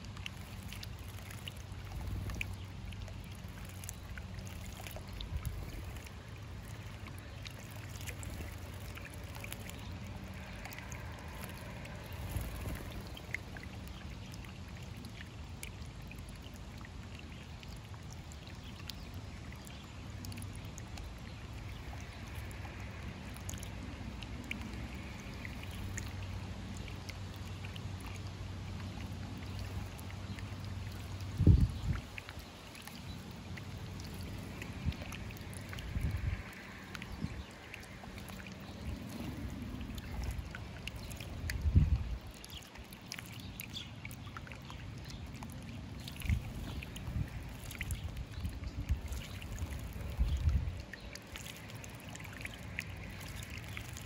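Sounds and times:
birds splashing in water: 0:00.0 - 0:54.0
fountain bubbling and trickling: 0:00.0 - 0:54.0
bird flapping in water: 0:00.2 - 0:14.6, 0:45.3 - 0:54.0.

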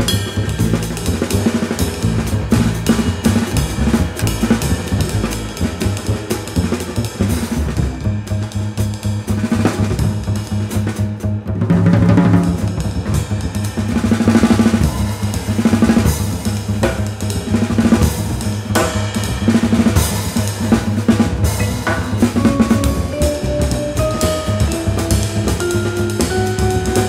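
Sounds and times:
drum kit playing: 0:00.0 - 0:27.0
plucked double bass: 0:00.0 - 0:27.0
ringing vibraphone notes: 0:21.6 - 0:27.0.

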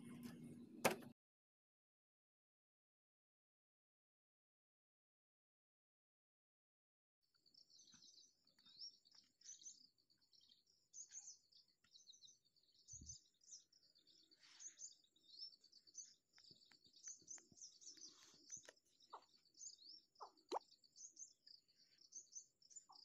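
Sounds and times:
small birds chirping: 0:07.2 - 0:23.0.

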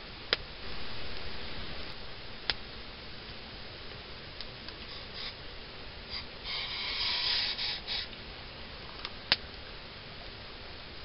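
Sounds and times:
campfire crackling: 0:00.0 - 0:06.6, 0:08.1 - 0:11.0.

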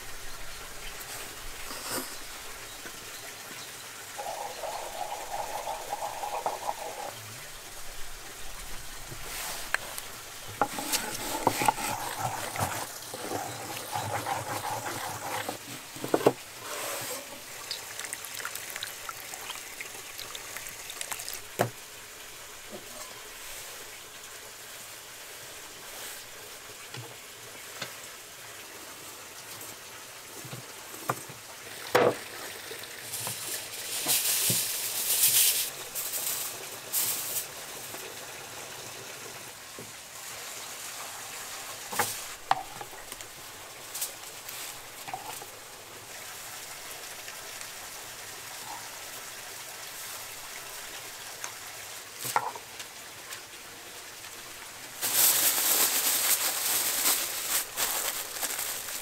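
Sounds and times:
food sizzling in a pan: 0:04.2 - 0:07.8.

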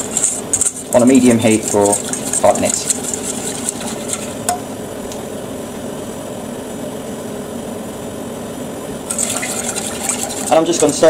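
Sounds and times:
whisk scraping a saucepan: 0:00.0 - 0:04.6, 0:09.1 - 0:11.0.

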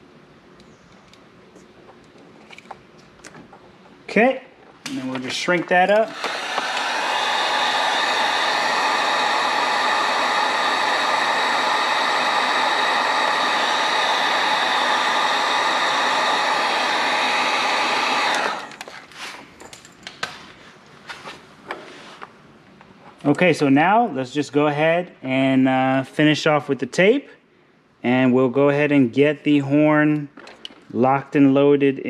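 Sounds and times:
heat gun blowing hot air: 0:05.0 - 0:19.4.

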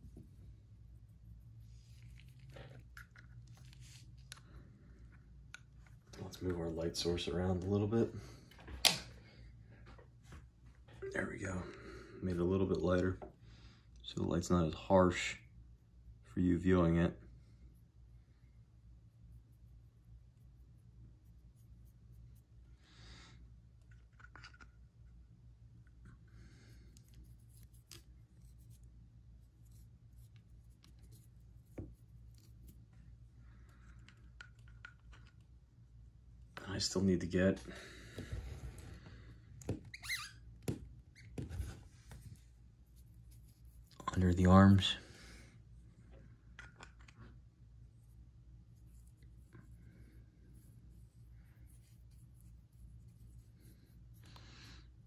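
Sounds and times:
low steady hum: 0:00.0 - 0:55.0
paintbrush scratching and dabbing: 0:00.8 - 0:04.4, 0:26.9 - 0:33.3, 0:41.2 - 0:44.5, 0:47.8 - 0:54.3
paintbrush scratching and tapping: 0:27.0 - 0:33.0.

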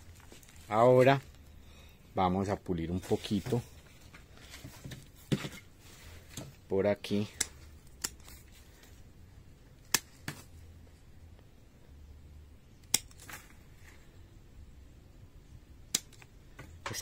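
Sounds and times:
pruning shears snipping: 0:07.3 - 0:08.5, 0:09.8 - 0:10.5, 0:12.8 - 0:13.6, 0:15.9 - 0:16.3.

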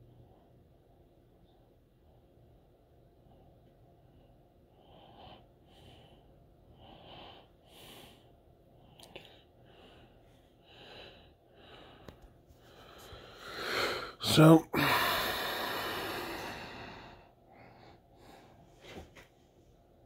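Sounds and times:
soft breathing: 0:00.0 - 0:19.8.

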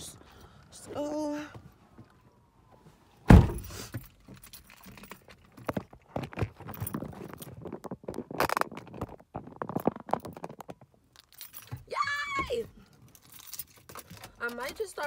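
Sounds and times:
car door shutting: 0:03.3 - 0:03.9
keys jangling: 0:03.6 - 0:07.6, 0:11.1 - 0:12.0, 0:12.8 - 0:15.0
clicks and rustles of handling: 0:04.0 - 0:11.8, 0:12.8 - 0:15.0.

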